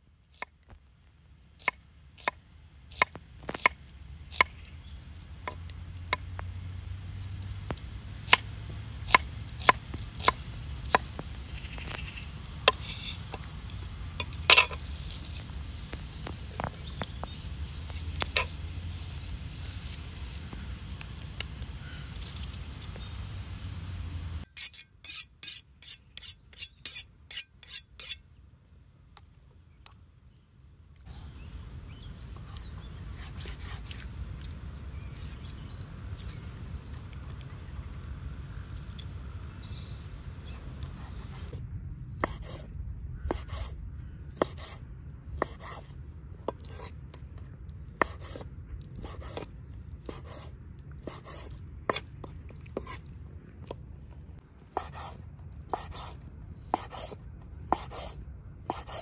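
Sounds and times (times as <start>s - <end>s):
low background noise: 0.0s - 58.9s
knife cutting on wooden board: 24.5s - 28.2s, 54.8s - 56.2s, 56.8s - 59.0s.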